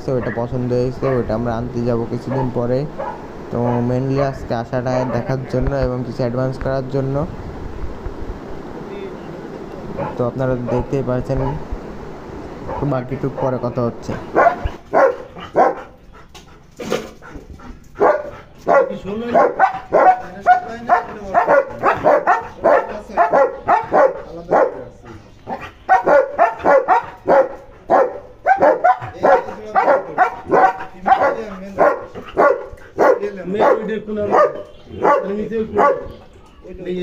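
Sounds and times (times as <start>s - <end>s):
dog barking: 0.1s - 1.4s, 2.2s - 5.4s, 10.0s - 11.6s, 12.6s - 13.6s, 14.3s - 16.0s, 18.0s - 36.3s.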